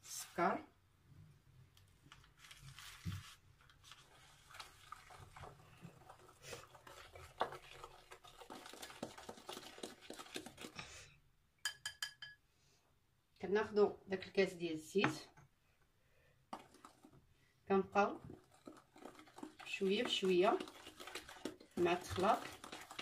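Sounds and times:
whisk scraping in a bowl: 0:03.9 - 0:10.9, 0:16.5 - 0:17.2, 0:18.0 - 0:23.0.

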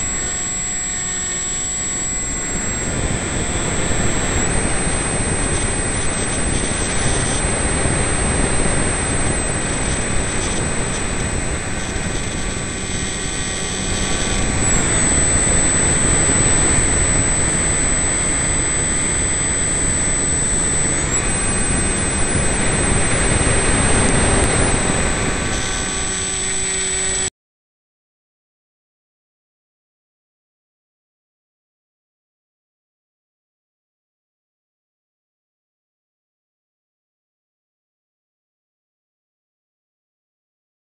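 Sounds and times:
model aircraft motor whine: 0:00.0 - 0:27.3
wind rush on microphone: 0:02.1 - 0:26.5.

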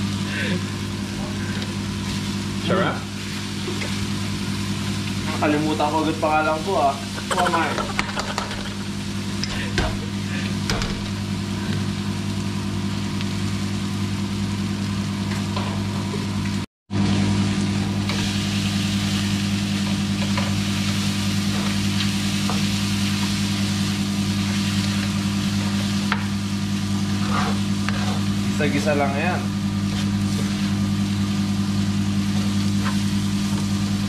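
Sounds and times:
food sizzling in wok: 0:00.0 - 0:34.0
spatula scraping and tapping wok: 0:24.4 - 0:28.4.

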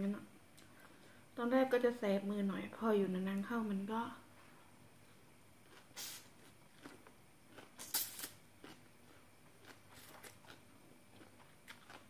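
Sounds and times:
person chewing wetly: 0:05.6 - 0:12.0
lip smacks: 0:07.6 - 0:08.4.

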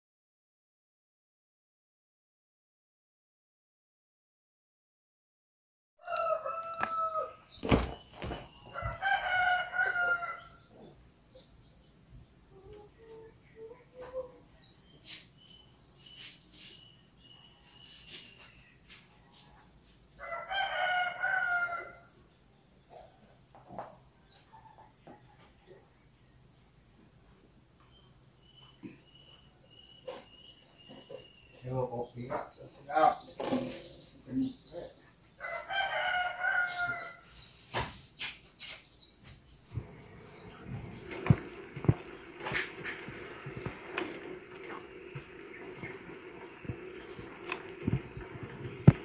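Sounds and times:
rooster crowing: 0:06.0 - 0:07.6, 0:08.6 - 0:10.7, 0:20.2 - 0:22.1, 0:35.3 - 0:37.3
insects chorus: 0:06.0 - 0:49.0.

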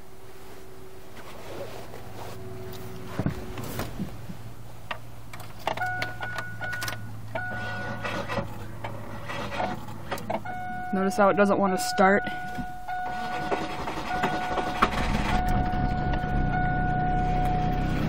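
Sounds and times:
steady low hum: 0:00.0 - 0:18.0
electronic warning tone: 0:05.8 - 0:08.0, 0:10.4 - 0:18.0.

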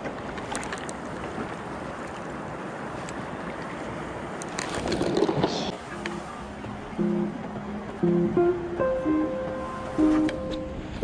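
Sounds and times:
stream water rushing: 0:00.0 - 0:11.0.

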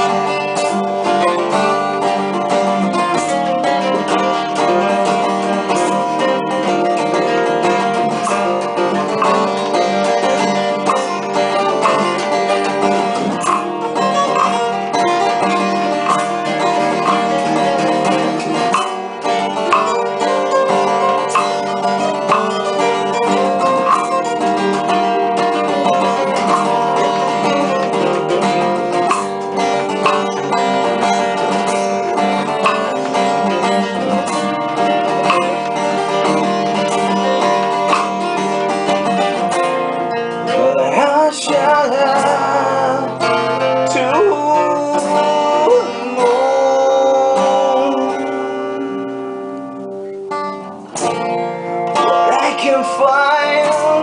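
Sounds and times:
acoustic guitars strumming: 0:00.0 - 0:54.0
person singing long gliding notes: 0:40.5 - 0:50.0.

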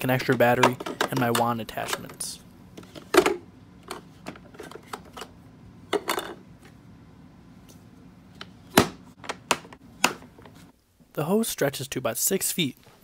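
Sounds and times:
hard objects clicking and knocking: 0:00.1 - 0:06.5.

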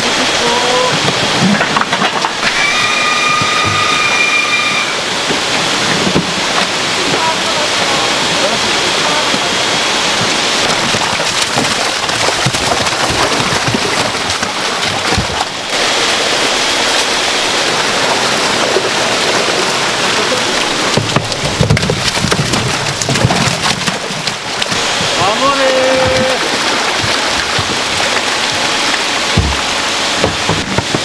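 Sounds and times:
water pouring into a tank: 0:02.4 - 0:31.0
fish thrashing in a net: 0:10.3 - 0:30.2.

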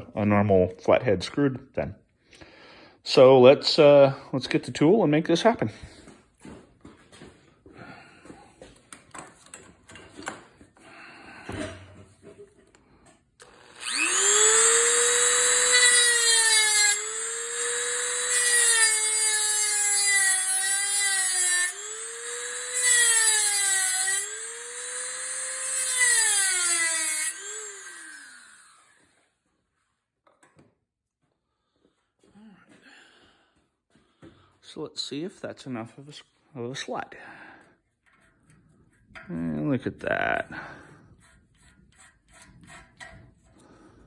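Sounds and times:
rotary tool cutting metal: 0:13.4 - 0:29.0, 0:41.0 - 0:43.8.

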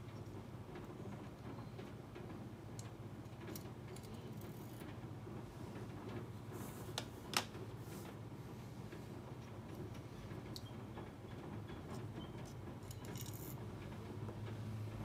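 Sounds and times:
small metal parts clicking: 0:12.8 - 0:13.6.

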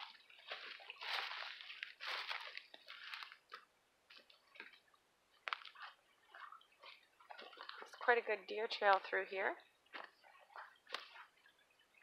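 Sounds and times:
footsteps crunching dry leaves: 0:00.0 - 0:03.5.

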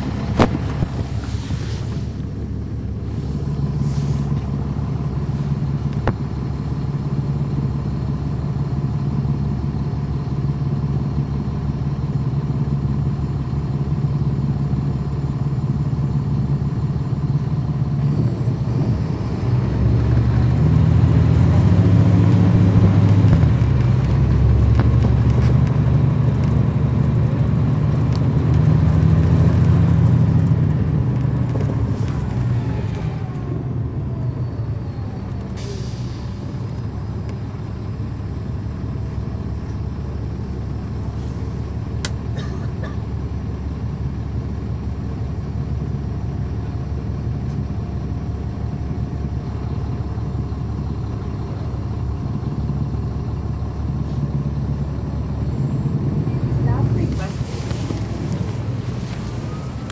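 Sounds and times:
bus diesel engine drone: 0:00.0 - 0:59.9.

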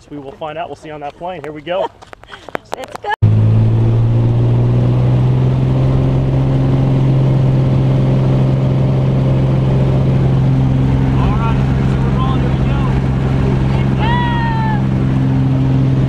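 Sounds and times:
propeller plane engine running: 0:02.4 - 0:16.0.

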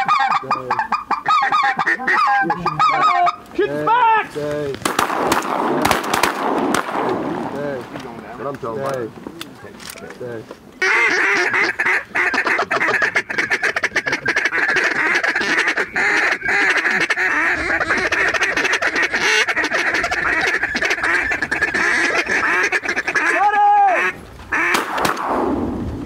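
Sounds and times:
drawn-out high duck call: 0:00.0 - 0:03.4, 0:10.8 - 0:24.8
ducks quacking: 0:00.0 - 0:04.1, 0:10.8 - 0:25.0.

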